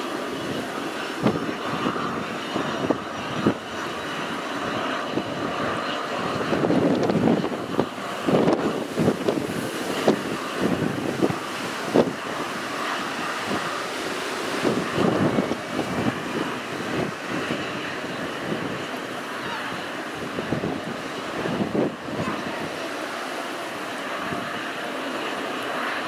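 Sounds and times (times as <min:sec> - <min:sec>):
helicopter rotor and turbine noise: 0:00.0 - 0:26.0
wind thumps on microphone: 0:01.2 - 0:03.6, 0:06.3 - 0:12.5, 0:14.6 - 0:18.8.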